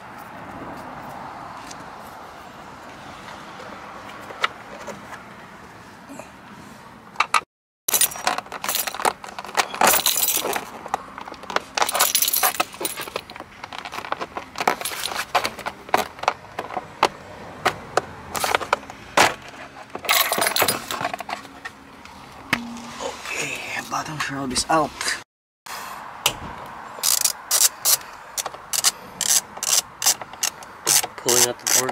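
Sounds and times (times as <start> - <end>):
keys jangling: 9.7 - 10.7, 11.8 - 13.4, 14.8 - 15.5, 20.0 - 21.3.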